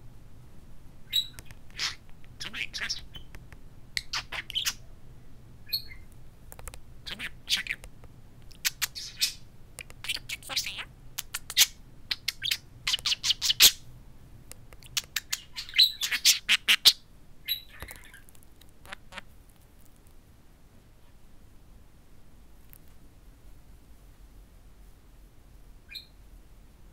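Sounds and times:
budgerigar chirping and clicking: 0:01.1 - 0:04.8, 0:05.7 - 0:13.8, 0:14.5 - 0:19.3.

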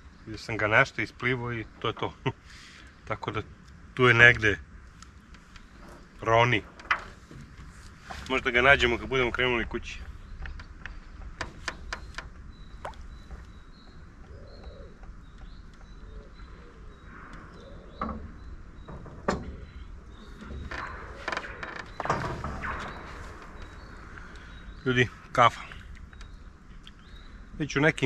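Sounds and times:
faint bird chirping: 0:00.0 - 0:28.0
knocks and clicks in boat: 0:05.3 - 0:23.9, 0:26.0 - 0:26.4
low rumble: 0:16.7 - 0:27.6.

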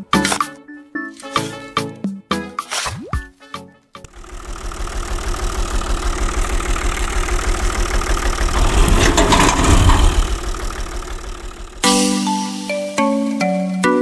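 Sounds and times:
tractor engine chugging: 0:04.1 - 0:12.1.

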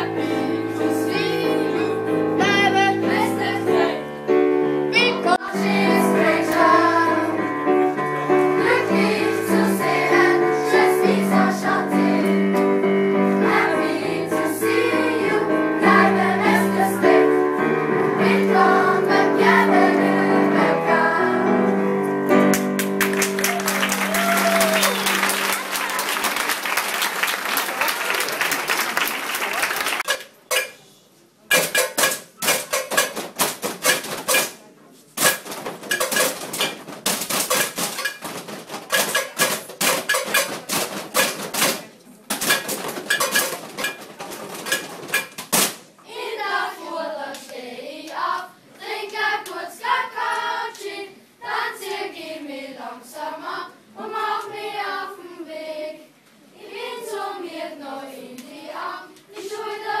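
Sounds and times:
children's voices gliding in pitch: 0:23.4 - 0:26.4.

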